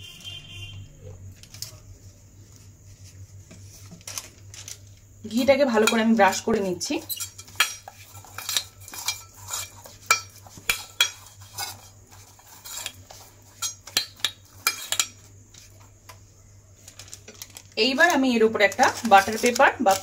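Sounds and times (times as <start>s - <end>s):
pastry brush scraping metal tin: 5.3s - 15.7s, 17.9s - 20.0s.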